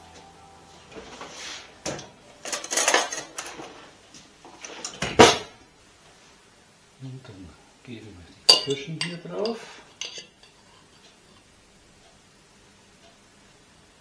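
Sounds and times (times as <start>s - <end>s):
utensils and dishes clinking: 1.8s - 3.8s, 8.5s - 11.1s.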